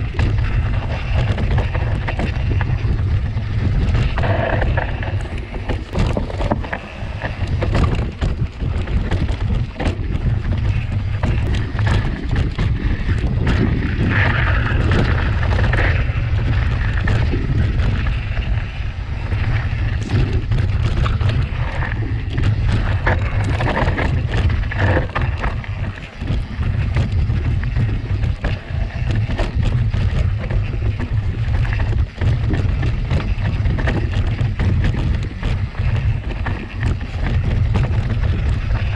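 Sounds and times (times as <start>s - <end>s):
bike clattering over rocks: 0.0s - 38.9s
wind on microphone: 0.0s - 38.9s.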